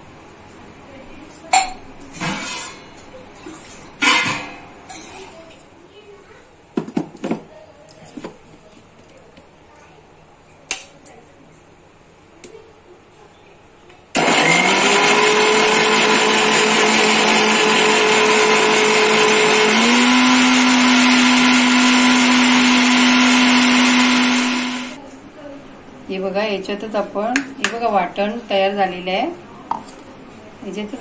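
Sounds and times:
mixer grinder motor running: 14.2 - 25.0.

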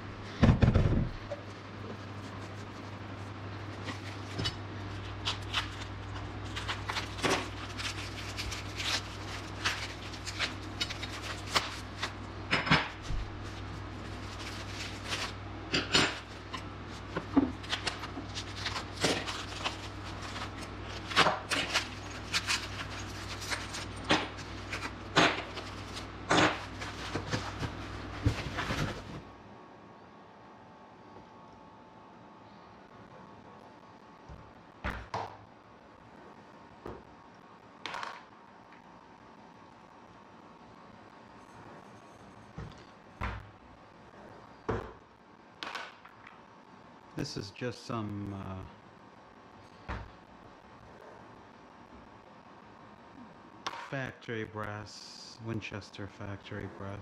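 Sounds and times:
steady low hum: 0.0 - 57.0
paper rustling: 3.7 - 12.2, 13.3 - 15.4, 16.2 - 29.2.

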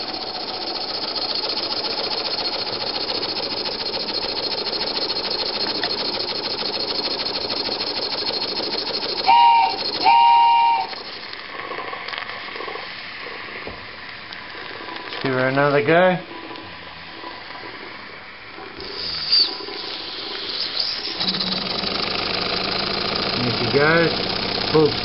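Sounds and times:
steam engine chuffing: 0.0 - 11.3, 18.8 - 25.0
short whistle tones: 9.2 - 11.0, 18.9 - 21.7.

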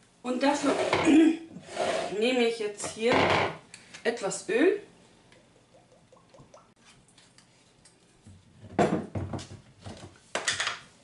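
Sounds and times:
oil glugging from a bottle: 5.4 - 6.8.

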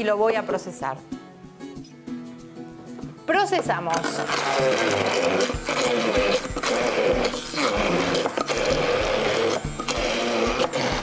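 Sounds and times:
background music: 0.0 - 11.0
immersion blender motor running: 4.0 - 11.0.

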